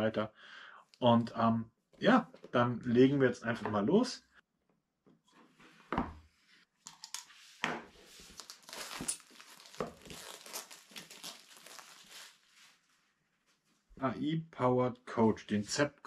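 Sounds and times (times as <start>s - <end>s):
plastic film crinkling: 8.2s - 12.8s.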